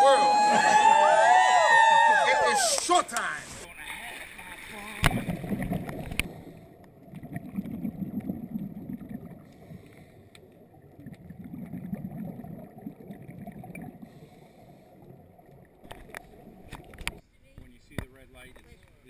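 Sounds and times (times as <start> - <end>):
muffled underwater water rush: 3.4 - 17.2
faint clicks: 9.5 - 11.2.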